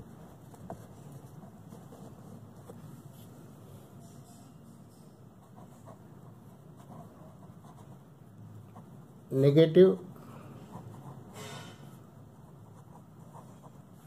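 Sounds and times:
pen scratching on paper: 0.0s - 3.3s, 5.4s - 8.1s, 10.7s - 14.0s
low steady hum: 0.0s - 14.0s.

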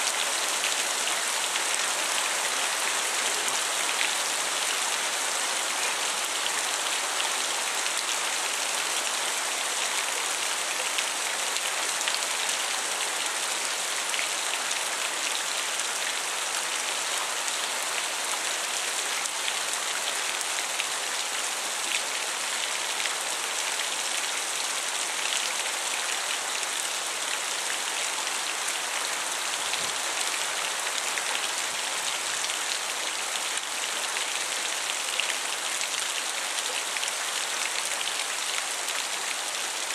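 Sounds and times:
rain pouring: 17.0s - 39.9s.

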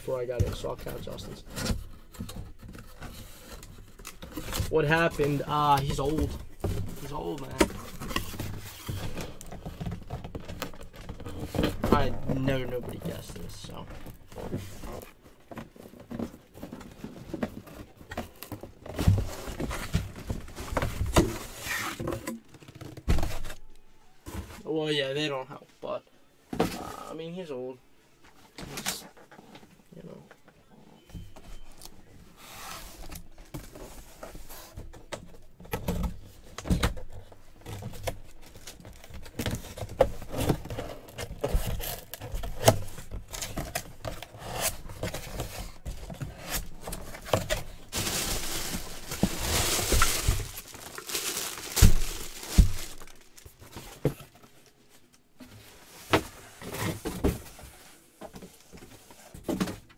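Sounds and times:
plastic bag crinkling: 47.6s - 53.7s
cardboard box knocks and scrapes: 51.8s - 54.4s.

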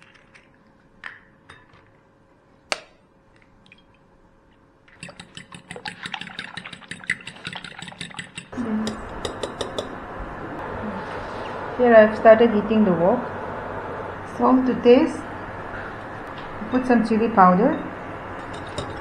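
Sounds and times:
fork beating eggs in glass bowl: 5.0s - 9.9s.

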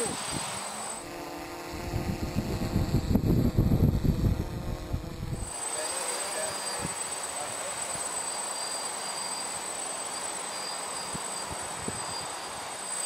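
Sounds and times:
rotor wash buffeting microphone: 0.0s - 8.3s
drone propellers humming: 0.0s - 13.0s.

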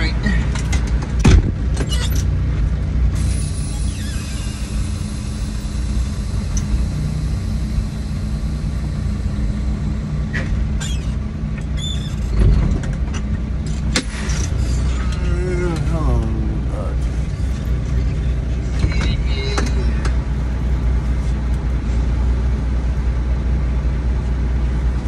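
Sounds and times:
truck engine rumbling: 0.0s - 25.0s
thud: 1.2s - 1.6s.

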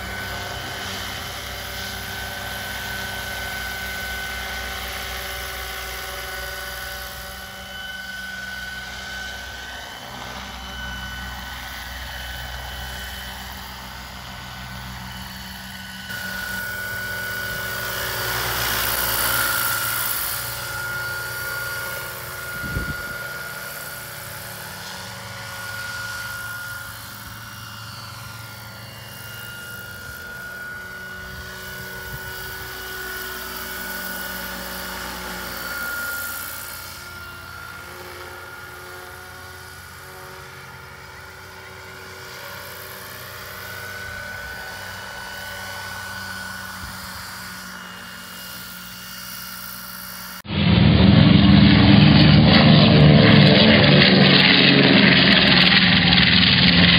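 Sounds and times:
electric motor whine: 0.0s - 56.9s
helicopter rotor noise: 0.0s - 56.9s.

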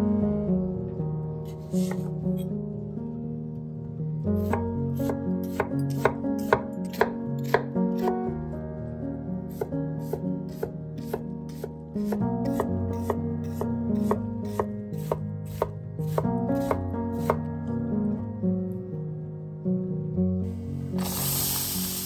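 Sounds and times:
knife chopping onion on board: 4.4s - 8.1s, 9.5s - 17.4s.

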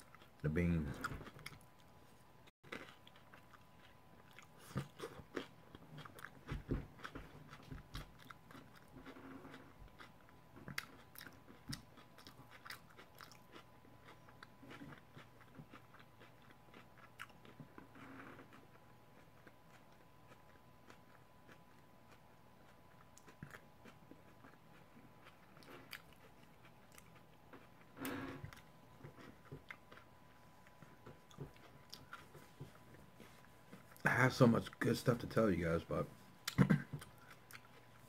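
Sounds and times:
crunchy taco chewing: 2.7s - 34.1s, 36.4s - 38.0s.

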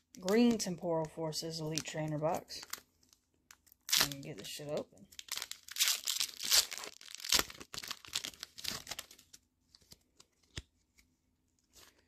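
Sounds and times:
foil wrapper tearing and crinkling: 3.5s - 9.4s.

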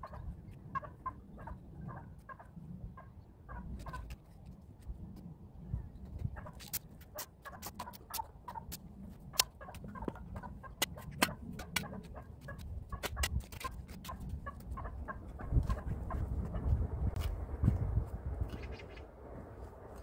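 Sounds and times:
chickens clucking: 0.0s - 4.2s, 6.4s - 16.7s.

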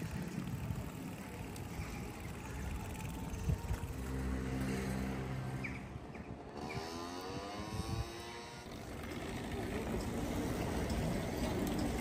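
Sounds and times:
street ambience: 0.0s - 12.0s
vehicle passing: 2.6s - 12.0s.

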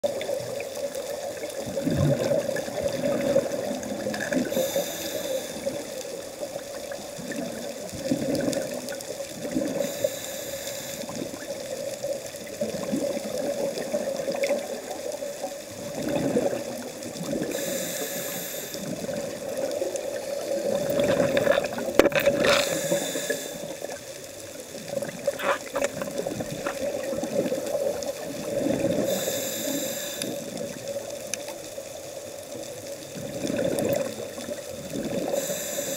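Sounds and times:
gurgle of exhaled bubbles: 0.0s - 10.2s, 10.8s - 17.8s, 18.7s - 24.1s, 24.7s - 31.0s, 33.0s - 35.9s
regulator hiss on inhale: 4.3s - 6.5s, 9.6s - 11.7s, 17.4s - 21.1s, 22.4s - 24.1s, 28.4s - 31.1s, 35.1s - 35.9s
steady hum: 4.5s - 5.8s, 9.8s - 11.1s, 17.5s - 18.9s, 22.6s - 23.8s, 29.0s - 30.5s.

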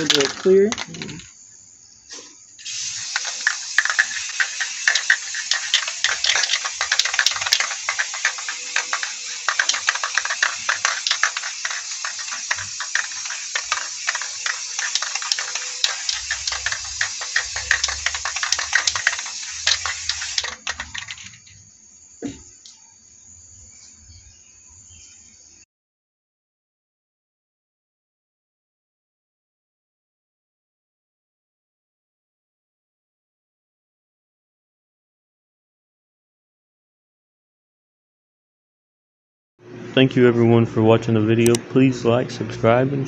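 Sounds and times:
aerosol spray can hissing: 2.6s - 21.4s.

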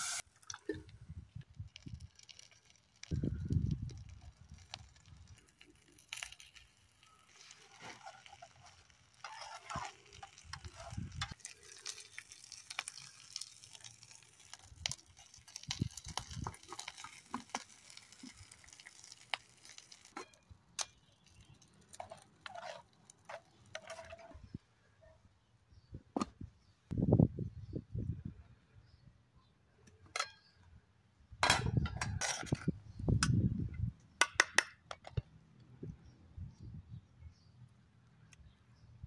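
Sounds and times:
camp stove crackling: 0.0s - 24.4s.

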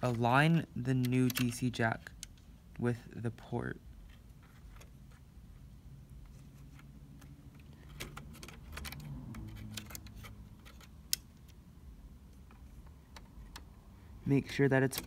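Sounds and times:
plastic and metal parts clicking: 1.0s - 2.4s, 6.7s - 11.6s.

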